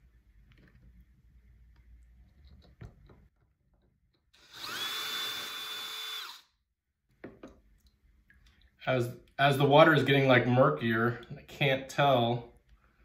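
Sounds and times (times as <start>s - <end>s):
drill grinding into rock: 4.4s - 6.5s.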